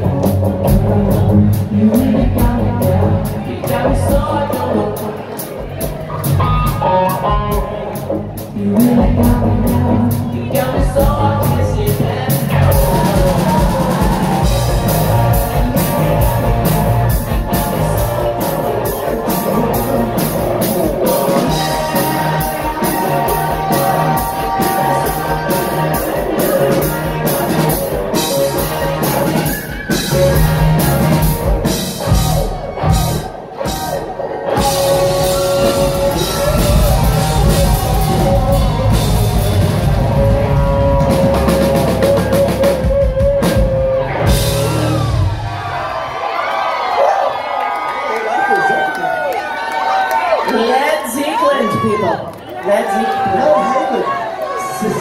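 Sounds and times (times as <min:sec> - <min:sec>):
drum kit: 0:00.0 - 0:46.0
electric guitars: 0:00.0 - 0:47.0
lead vocal singing: 0:00.7 - 0:06.3, 0:07.3 - 0:31.3, 0:33.7 - 0:45.1.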